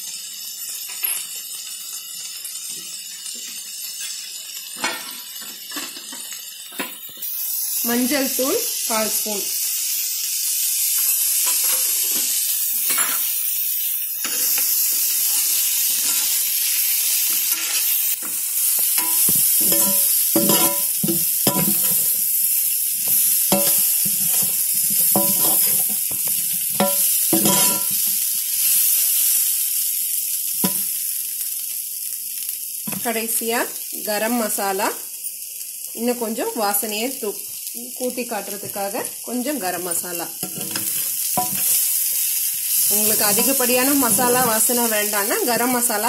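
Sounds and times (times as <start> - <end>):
potatoes sizzling in hot oil: 0.0 - 46.0
metal ladle scraping and knocking pan: 19.0 - 22.0, 26.8 - 27.9.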